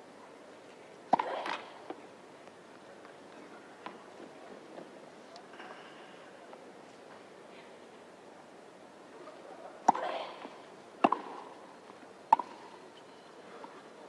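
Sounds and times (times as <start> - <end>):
faint crowd murmur: 0.0 - 14.0
tennis ball hit by rackets: 1.1 - 1.7, 11.0 - 11.5, 12.3 - 12.6.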